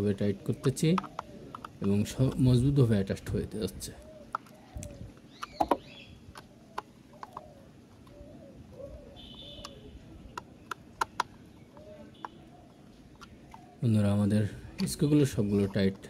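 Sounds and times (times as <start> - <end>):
bird cooing: 0.3 - 2.9, 3.7 - 15.5
plastic toy clicks and taps: 0.9 - 2.5, 9.6 - 12.4.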